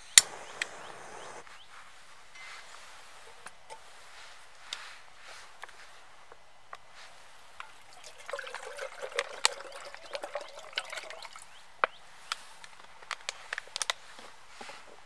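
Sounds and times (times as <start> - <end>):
water trickling pour: 7.6 - 11.5.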